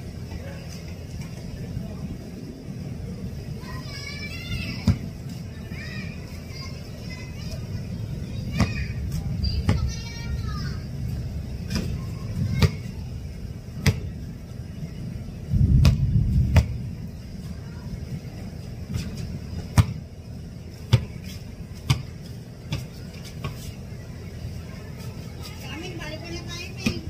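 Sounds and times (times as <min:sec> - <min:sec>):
steady low rumble: 0:00.0 - 0:27.0
basketball thumps: 0:13.8 - 0:14.1, 0:15.8 - 0:16.8, 0:18.9 - 0:20.0.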